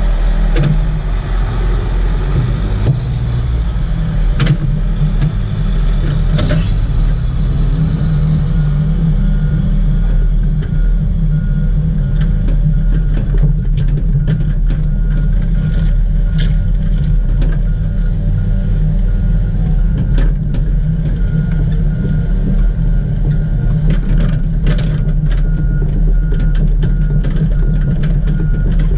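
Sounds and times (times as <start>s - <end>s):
excavator diesel engine running: 0.0s - 28.9s
faint repeating alarm beep: 17.7s - 24.3s
machine clanks and knocks: 23.2s - 28.9s.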